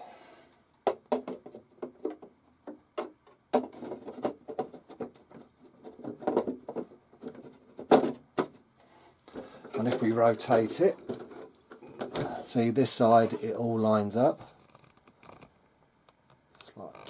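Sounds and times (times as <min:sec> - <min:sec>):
plastic rubbing scrapes: 0:03.6 - 0:12.6.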